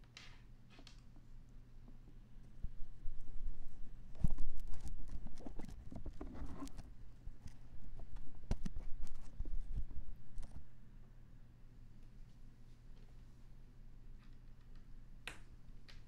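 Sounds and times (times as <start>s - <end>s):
microphone handling knocks and scrapes: 3.5s - 10.6s.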